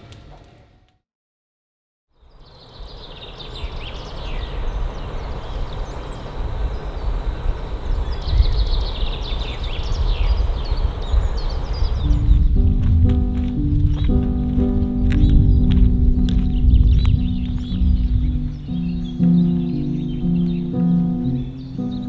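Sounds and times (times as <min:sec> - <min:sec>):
songbirds chirping: 0:02.1 - 0:22.0
steady rushing noise: 0:04.1 - 0:22.0
low rumble: 0:10.4 - 0:21.3.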